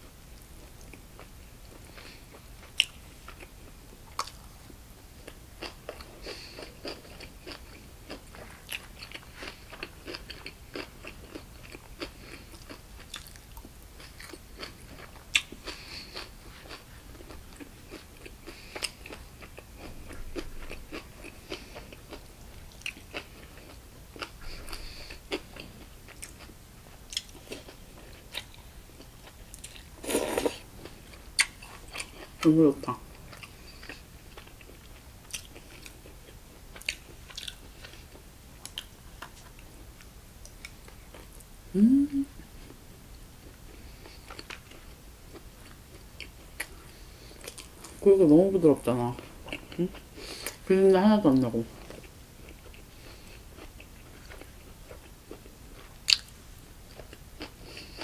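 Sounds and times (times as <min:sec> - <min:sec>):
chewing and crunching food: 0:00.4 - 0:41.5, 0:43.4 - 0:48.1, 0:48.8 - 0:50.7, 0:51.3 - 0:58.0
wet mouth sounds: 0:41.8 - 0:42.3.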